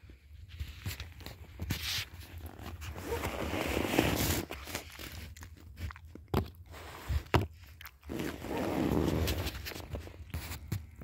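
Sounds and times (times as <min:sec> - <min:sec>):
bear cub crunching and chewing: 0:04.0 - 0:11.0.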